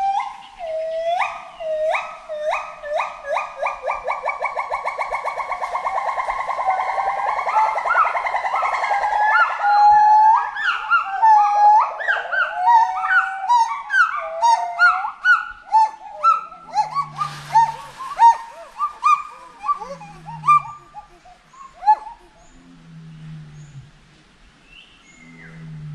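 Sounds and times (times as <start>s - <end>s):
gibbons whooping: 15.7s - 22.5s
low hoots: 15.7s - 24.0s.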